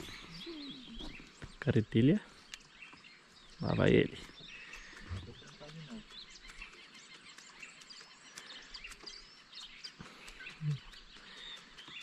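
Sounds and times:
faint bird chirps: 0.0s - 12.0s
outdoor background noise: 0.0s - 12.0s
faint clicks: 2.4s - 3.0s, 4.3s - 12.0s.

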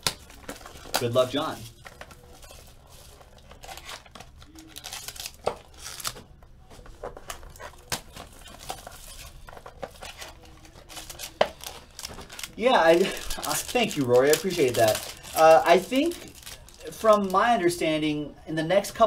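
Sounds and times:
paper rustling: 0.0s - 17.4s
foil wrappers crinkling: 0.0s - 17.7s.

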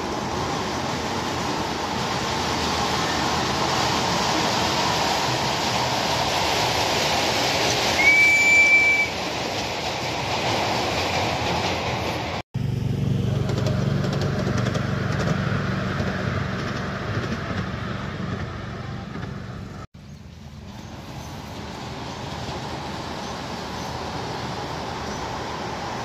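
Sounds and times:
miniature train running on bridge: 0.0s - 12.4s, 13.4s - 26.0s
locomotive whistle blast: 7.9s - 9.2s.

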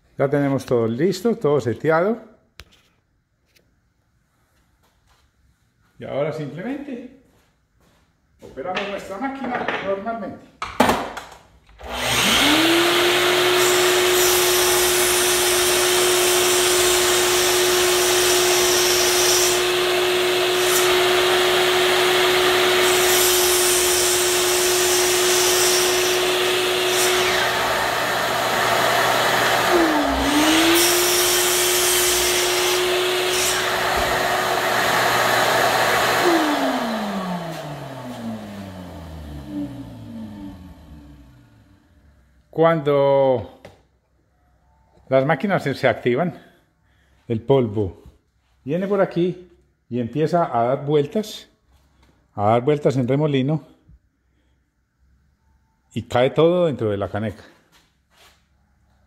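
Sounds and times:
miter saw motor whining: 11.8s - 41.6s
saw blade cutting wood: 11.9s - 34.3s.

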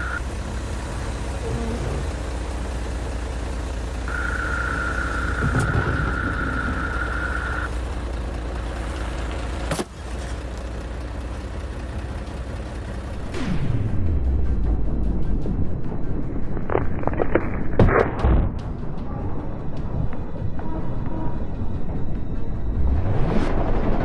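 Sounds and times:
truck diesel engine idling: 0.0s - 13.4s
steady high tone: 4.1s - 7.7s.

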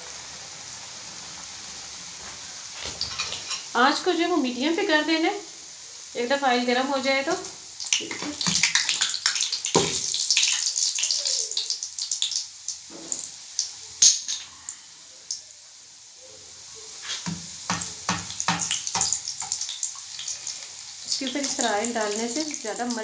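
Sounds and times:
food sizzling in hot oil: 0.0s - 23.0s
spatula knocking in pan: 8.0s - 10.2s, 17.2s - 19.6s.

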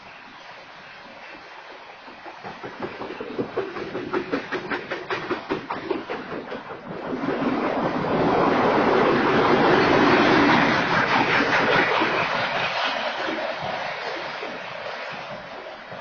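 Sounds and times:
rushing of passing train cars: 0.0s - 16.0s
train wheels clacking on rails: 0.0s - 16.0s.

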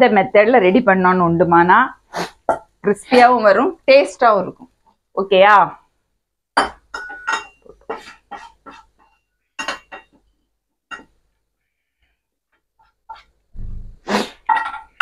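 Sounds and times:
metal cookware clinking: 6.6s - 10.2s, 10.9s - 11.2s, 14.5s - 15.0s.

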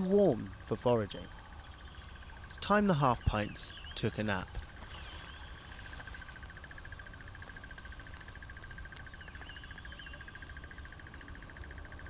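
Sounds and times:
insect trill: 0.0s - 12.0s
high bird chirps: 1.0s - 6.5s.

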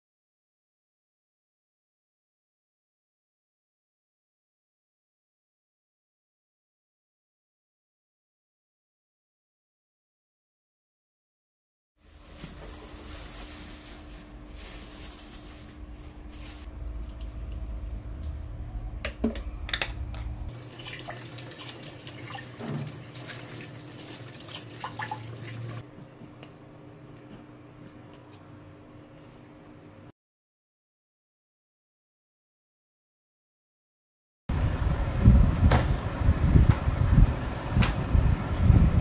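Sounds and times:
tap water running into colander: 20.5s - 25.8s.

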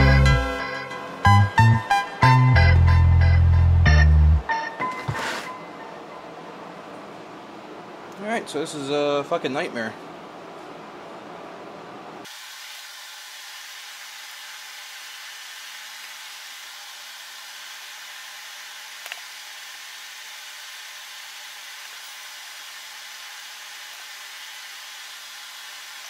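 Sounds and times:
steady hiss: 12.2s - 26.0s.

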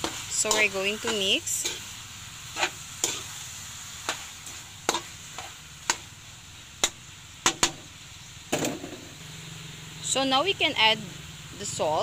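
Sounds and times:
spatula scraping metal wok: 0.0s - 6.1s
faint sizzle: 0.0s - 12.0s.

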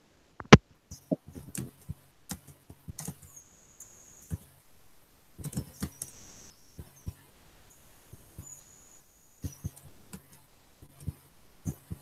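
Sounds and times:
faint high whine: 0.0s - 12.0s
faint clicks and taps: 0.4s - 4.6s, 5.4s - 7.3s, 8.0s - 8.6s, 9.4s - 12.0s.

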